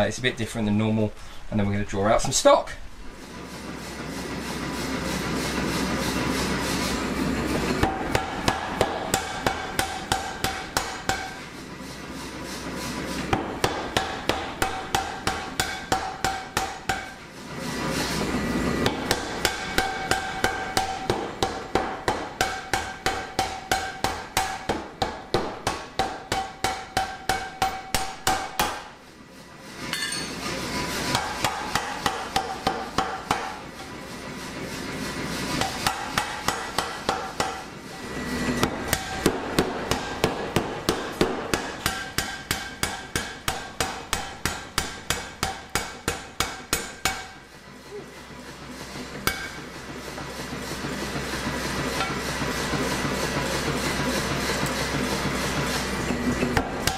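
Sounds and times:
machine running steadily: 0.0s - 56.9s
power hammer striking steel: 6.4s - 12.0s, 12.6s - 17.3s, 18.0s - 29.0s, 29.9s - 30.5s, 31.1s - 34.0s, 35.5s - 47.6s, 49.0s - 56.9s.

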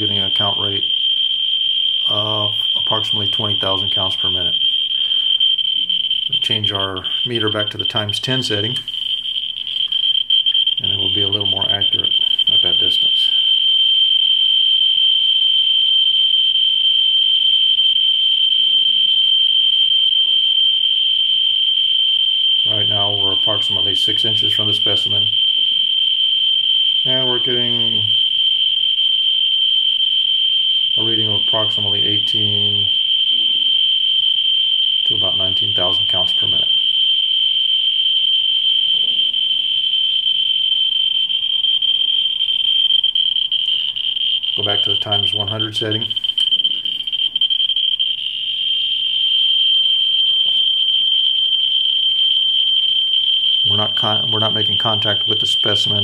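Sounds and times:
geiger counter high-pitched buzz: 17.3s - 56.0s.

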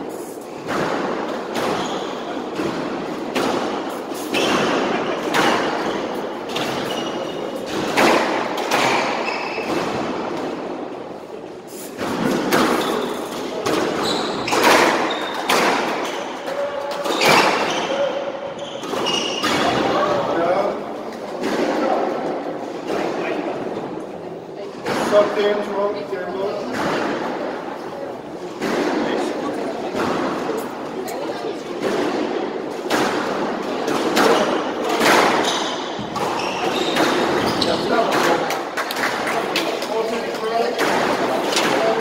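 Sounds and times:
squash ball thuds: 40.6s - 42.0s.

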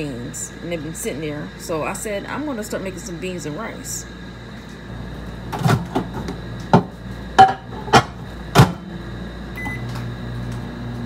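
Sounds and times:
microwave oven humming: 0.0s - 11.0s
keypad beep: 9.6s - 9.9s.

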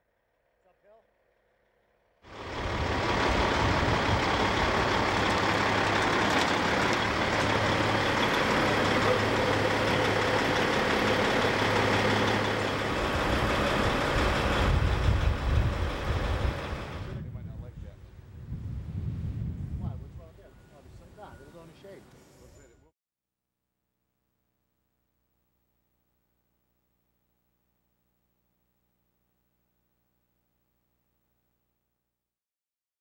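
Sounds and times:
bus engine droning: 2.3s - 17.2s.

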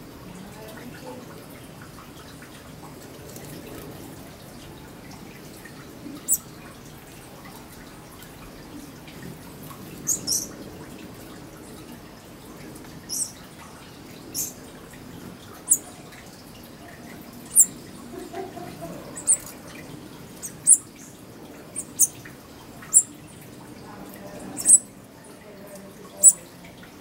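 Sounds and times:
small birds chip calls: 6.2s - 6.6s, 9.9s - 10.6s, 13.0s - 14.7s, 15.6s - 16.1s, 17.2s - 23.4s, 24.2s - 25.0s, 26.2s - 26.5s.

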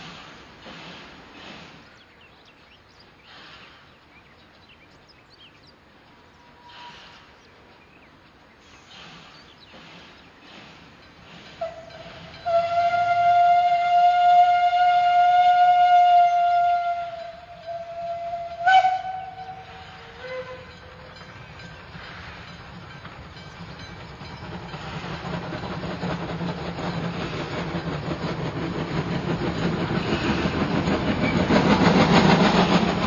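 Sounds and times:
steam engine whistle: 11.6s - 20.8s.

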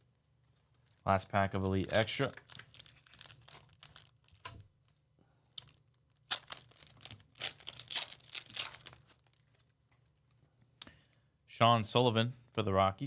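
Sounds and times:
foil wrapper tearing and crinkling: 0.8s - 4.6s, 5.6s - 9.7s.

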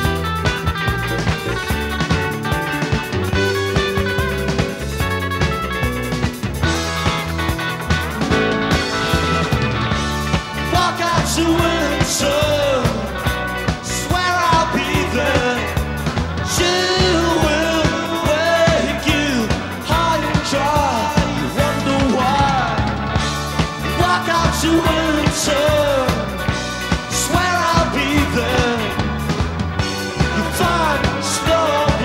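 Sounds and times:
drums: 0.0s - 32.0s
electric guitar: 0.0s - 32.0s
man singing: 10.5s - 23.2s, 23.8s - 29.3s, 30.0s - 32.0s.

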